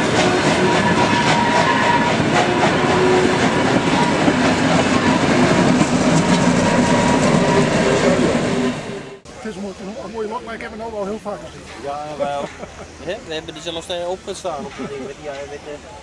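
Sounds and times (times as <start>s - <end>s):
squealing wheels: 0.0s - 9.1s.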